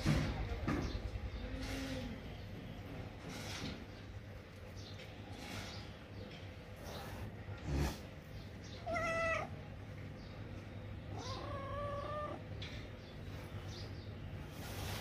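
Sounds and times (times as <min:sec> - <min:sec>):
kitten meowing: 0:08.8 - 0:09.5, 0:11.1 - 0:12.4.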